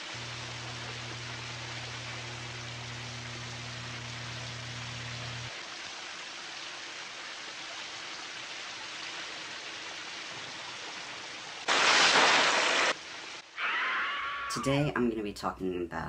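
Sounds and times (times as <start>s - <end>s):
shower spray running: 0.0s - 5.6s, 11.7s - 13.0s.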